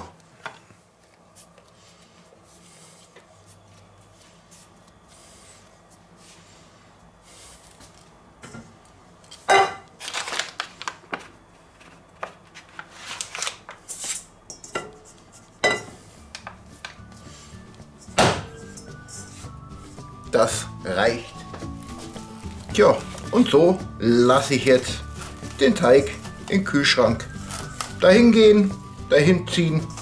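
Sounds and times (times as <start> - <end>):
hands kneading dough: 0.0 - 8.2.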